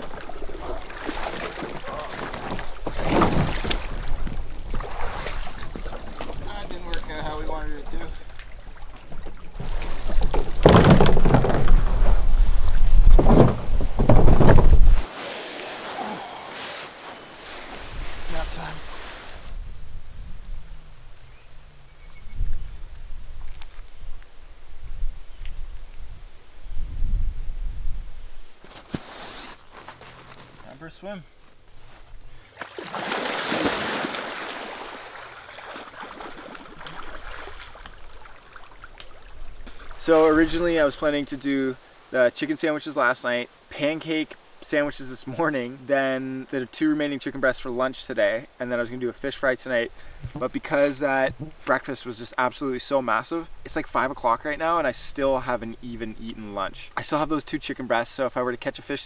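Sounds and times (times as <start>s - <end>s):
person splashing into lake: 0.0s - 6.4s, 14.4s - 17.1s, 32.6s - 39.7s
canoe scraping on rocks: 0.0s - 8.2s, 9.0s - 19.5s
water sloshing and trickling: 0.0s - 19.2s, 31.7s - 41.0s.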